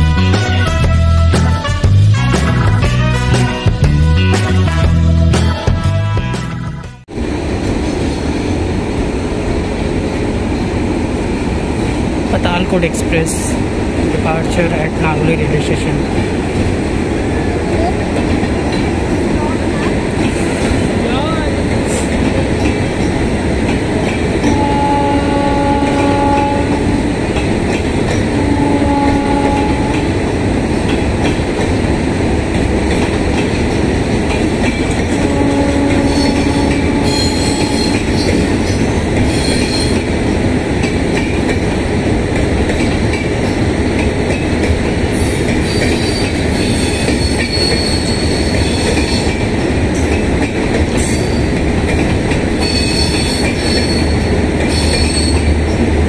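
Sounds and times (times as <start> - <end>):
train horn blasts: 0.0 - 5.1, 24.4 - 27.0, 28.3 - 30.1, 35.2 - 38.2
train wheels clickety-clack: 17.8 - 24.8, 25.5 - 56.0
high-pitched wheel squeal: 36.0 - 38.7, 45.7 - 49.3, 52.6 - 55.5.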